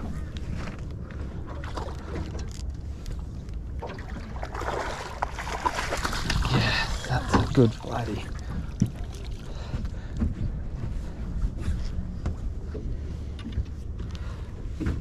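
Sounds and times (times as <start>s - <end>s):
water splashing beside boat: 0.0s - 10.6s.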